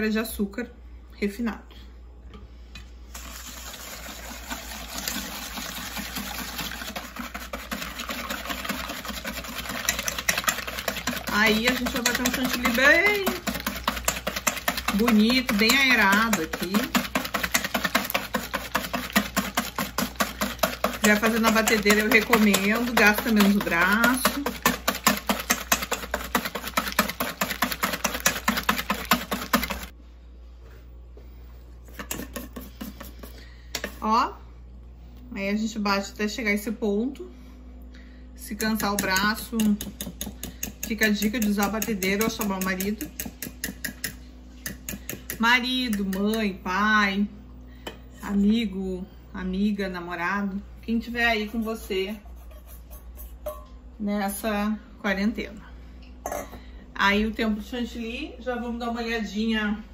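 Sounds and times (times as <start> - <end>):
whisk clicking on metal bowl: 4.6 - 29.9, 38.5 - 46.5.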